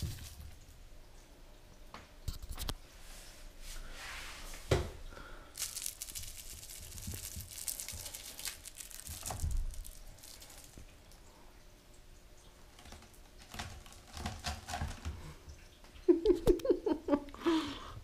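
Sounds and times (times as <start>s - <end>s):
fabric toy crinkling when shaken: 5.6s - 10.8s.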